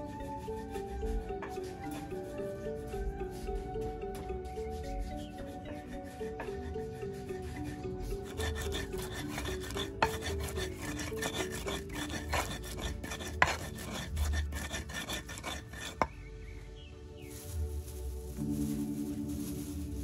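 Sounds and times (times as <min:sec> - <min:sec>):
stone pestle grinding in mortar: 0:04.6 - 0:16.2.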